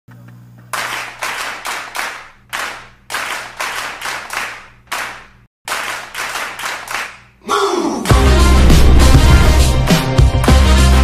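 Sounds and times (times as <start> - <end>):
rhythmic hand claps: 0.7 - 7.3, 9.9 - 11.0.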